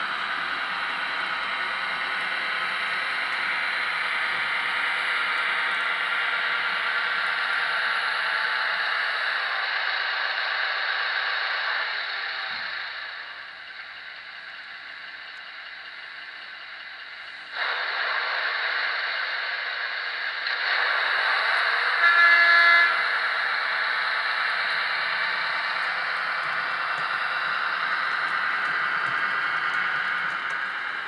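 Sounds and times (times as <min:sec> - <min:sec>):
model train clattering: 0:00.0 - 0:06.9, 0:22.0 - 0:31.0
train horn blast: 0:21.8 - 0:24.0.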